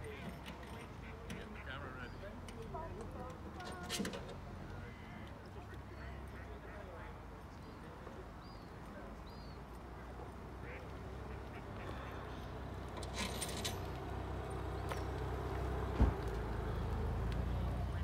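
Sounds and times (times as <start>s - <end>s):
faint waterfowl calls: 4.7s - 7.2s, 9.4s - 12.6s
short thump: 15.9s - 16.2s.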